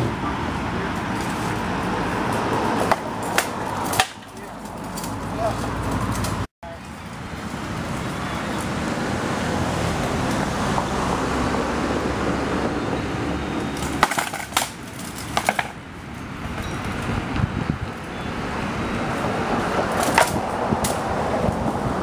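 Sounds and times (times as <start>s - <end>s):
wind noise on microphone: 15.8s - 22.0s.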